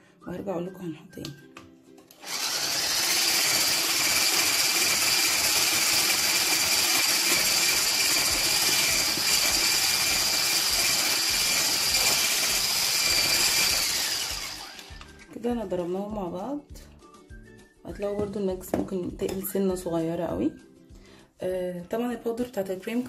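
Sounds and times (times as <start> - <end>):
hand blender whirring: 2.2 - 15.2.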